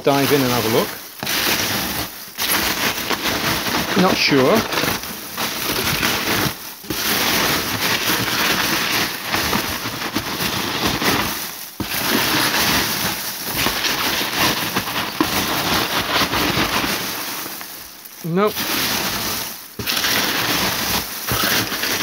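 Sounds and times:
packing peanuts rustling: 0:00.0 - 0:22.0.

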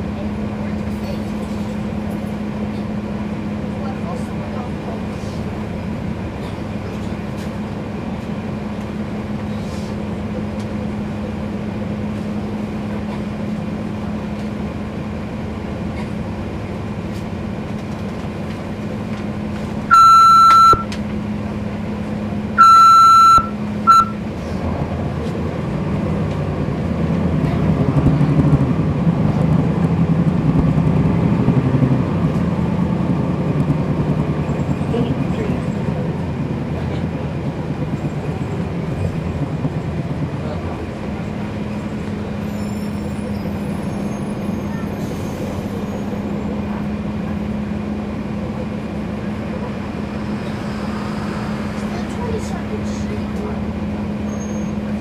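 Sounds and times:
bus diesel engine idling: 0:00.0 - 0:55.0
loud electronic beeps: 0:19.9 - 0:20.9, 0:22.6 - 0:24.2.

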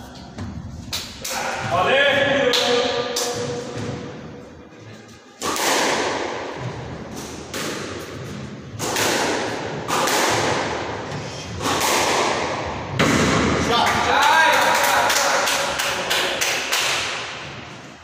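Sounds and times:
squash ball smacks echoing: 0:05.4 - 0:13.8.

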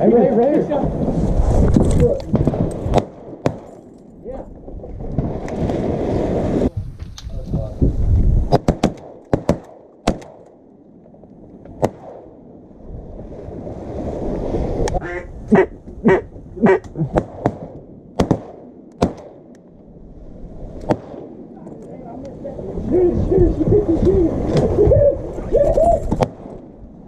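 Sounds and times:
wind rumbling on microphone: 0:00.0 - 0:09.1, 0:10.6 - 0:27.0
duck call quacks: 0:15.0 - 0:16.9.

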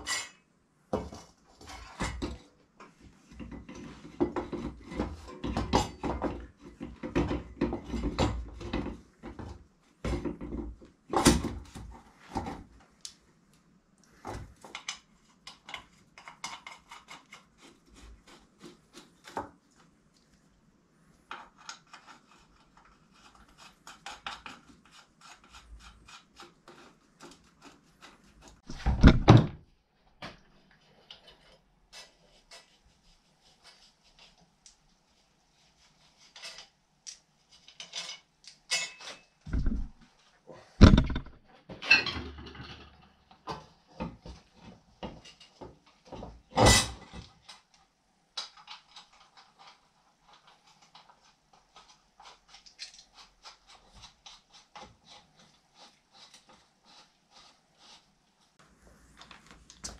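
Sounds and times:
hand tools knocking and scraping: 0:01.0 - 0:12.7, 0:37.7 - 0:40.0, 0:40.8 - 0:47.3.

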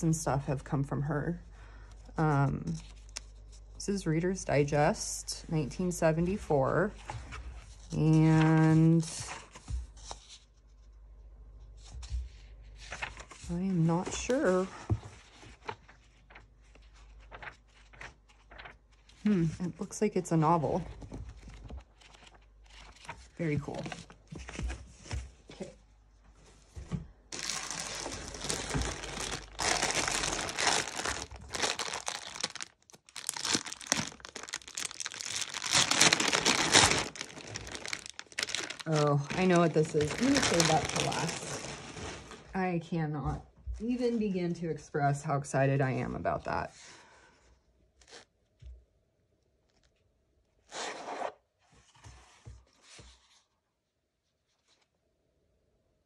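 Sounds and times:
plastic bag crinkling: 0:27.3 - 0:42.5.

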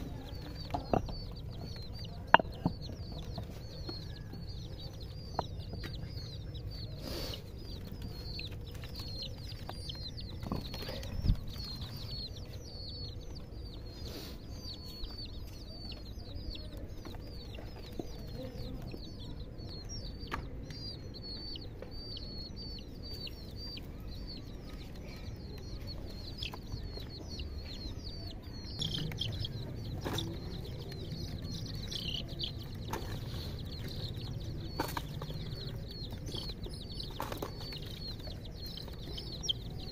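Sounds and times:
baby chicks peeping: 0:00.0 - 0:39.9.

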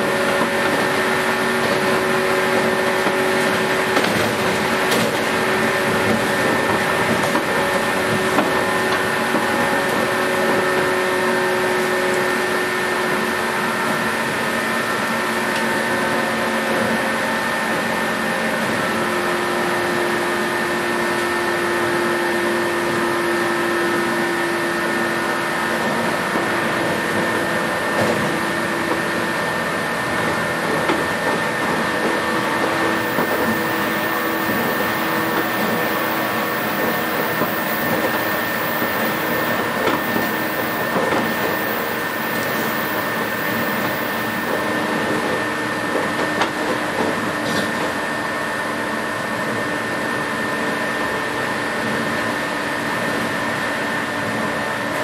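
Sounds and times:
wheel and rail noise: 0:00.0 - 0:55.0
electric train motors whirring: 0:25.8 - 0:48.0
high whine: 0:30.2 - 0:45.3.

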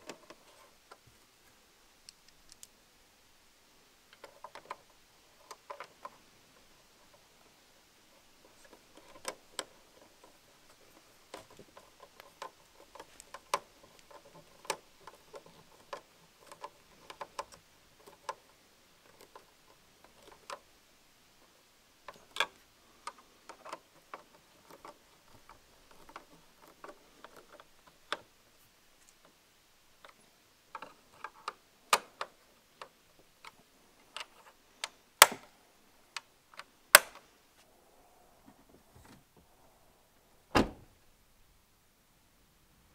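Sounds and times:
plastic clicks and rattles: 0:02.1 - 0:02.7, 0:04.1 - 0:06.2, 0:08.5 - 0:20.6, 0:30.0 - 0:35.5
sharp plastic snaps: 0:34.2 - 0:35.5, 0:36.2 - 0:37.3.

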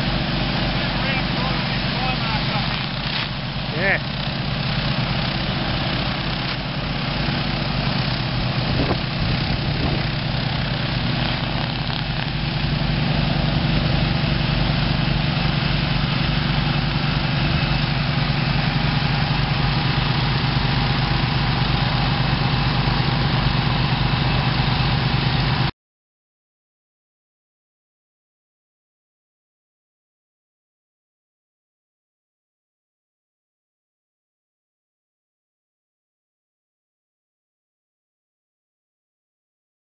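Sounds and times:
petrol engines droning: 0:00.0 - 0:25.7.

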